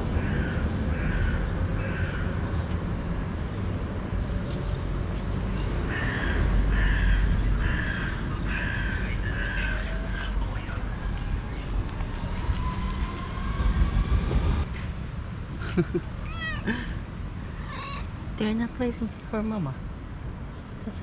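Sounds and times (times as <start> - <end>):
street traffic rumble: 0.0 - 21.0
crow cawing: 0.2 - 2.4, 5.9 - 10.4.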